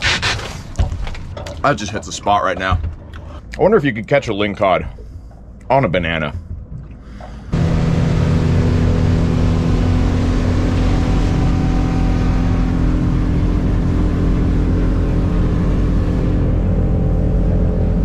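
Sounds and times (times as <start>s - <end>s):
motorboat engine running: 4.6s - 18.0s
water rushing along hull: 6.0s - 18.0s.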